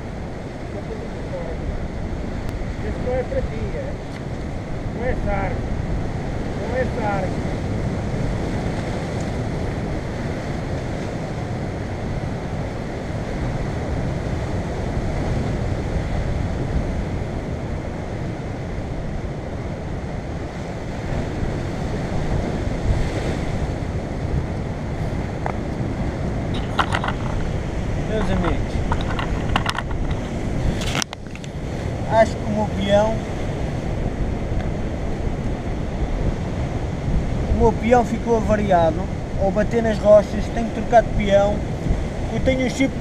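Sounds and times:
surf breaking on rocks: 0.0 - 43.0
wind buffeting microphone: 0.0 - 43.0
camera handling knocks: 26.6 - 27.5, 28.4 - 31.5.

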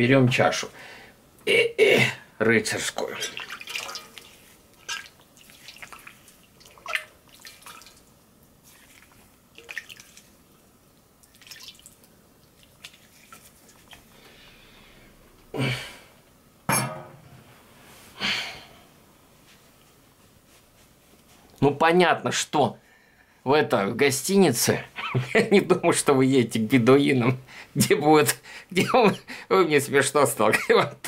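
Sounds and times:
water splashing and dripping: 3.2 - 10.5, 11.2 - 14.0.

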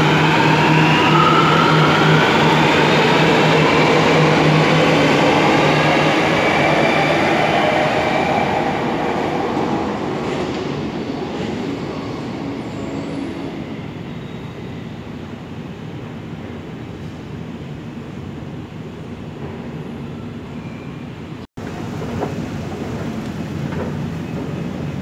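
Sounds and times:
train wheels rumbling: 21.6 - 25.0.

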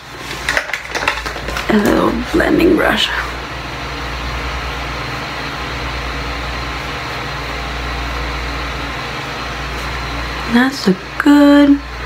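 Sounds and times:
low hum: 11.4 - 12.0.

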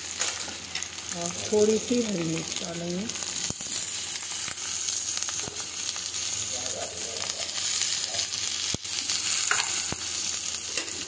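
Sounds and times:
food sizzling in hot oil: 0.0 - 11.0
sharp pop of frying oil: 9.4 - 10.0.

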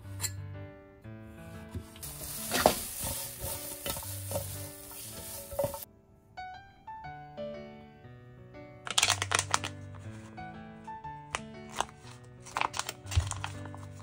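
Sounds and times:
background music: 0.0 - 14.0
food sizzling in oil: 2.0 - 5.9.

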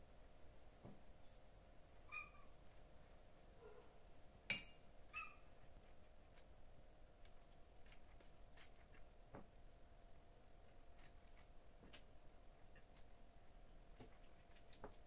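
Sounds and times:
faint steady hum: 0.0 - 15.0
high chirpy cat meows: 2.1 - 2.5, 5.1 - 5.4.

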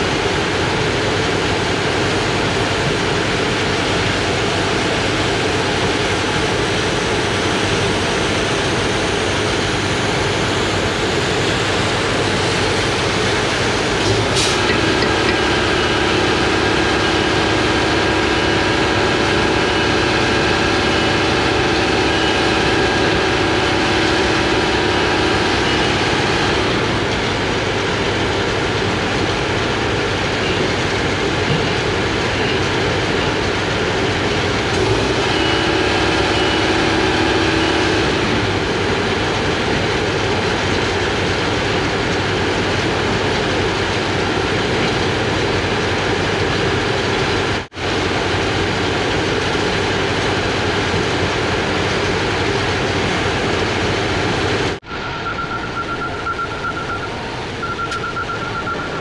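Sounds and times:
engine running: 0.0 - 59.0
humming tone: 54.8 - 59.0.

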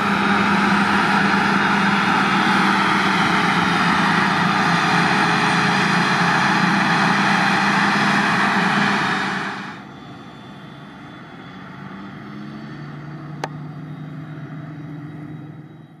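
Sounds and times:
forage harvester engine running: 0.0 - 11.7.

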